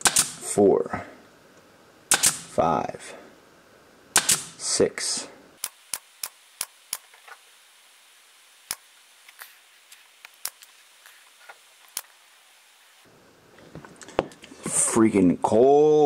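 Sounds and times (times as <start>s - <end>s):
pin nailer firing sharp snaps: 0.0s - 0.5s, 2.1s - 2.6s, 4.1s - 4.6s, 5.6s - 7.1s.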